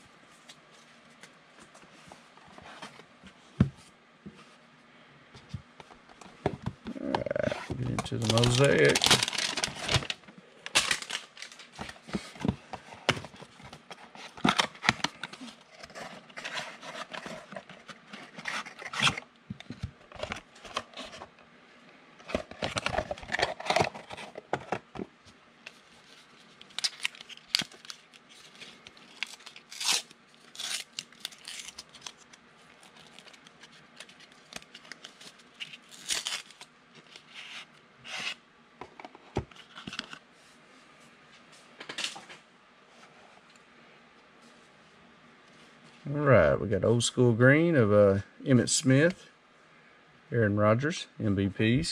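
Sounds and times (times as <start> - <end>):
cards clicking and scraping: 6.9 - 12.6
wrappers tearing and crinkling: 7.0 - 12.1, 26.0 - 38.4.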